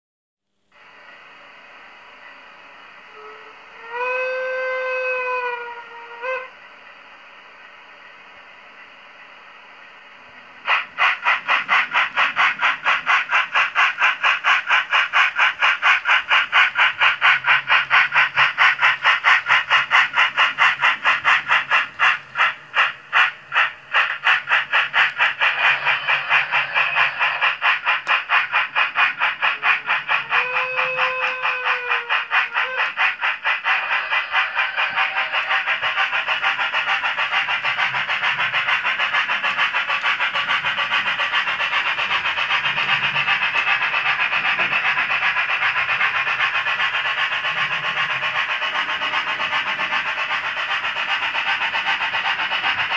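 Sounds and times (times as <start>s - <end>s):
steam locomotive chuffing: 0.6s - 52.9s
steam whistle: 3.0s - 6.6s, 29.8s - 33.0s.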